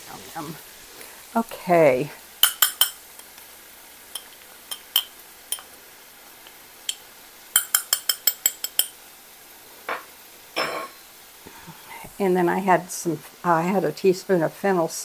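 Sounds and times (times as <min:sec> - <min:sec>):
spoon clinking on ceramic: 0:02.4 - 0:03.0, 0:04.1 - 0:05.7, 0:06.9 - 0:09.0, 0:10.6 - 0:11.0.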